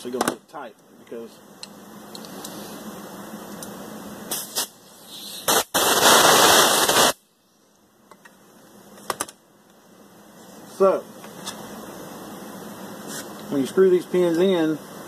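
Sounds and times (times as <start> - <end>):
compressed air blowgun bursts: 4.3 - 7.2.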